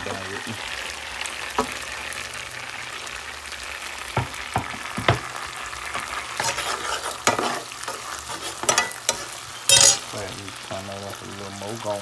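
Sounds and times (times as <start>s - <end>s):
vegetables sizzling in butter: 0.0s - 12.0s
metal spoon scraping pan: 6.0s - 10.1s.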